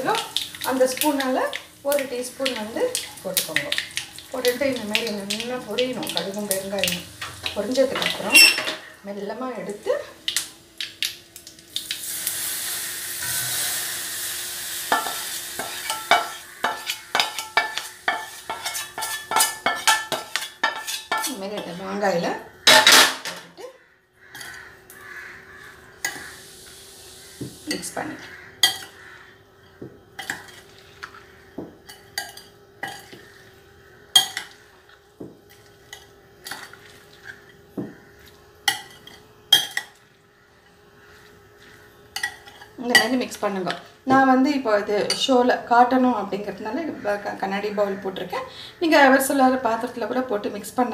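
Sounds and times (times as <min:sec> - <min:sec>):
hot oil hissing and sizzling: 0:00.0 - 0:23.1, 0:24.2 - 0:50.9
metal scraping on steel pan: 0:07.4 - 0:08.9, 0:14.8 - 0:21.8, 0:24.3 - 0:24.6.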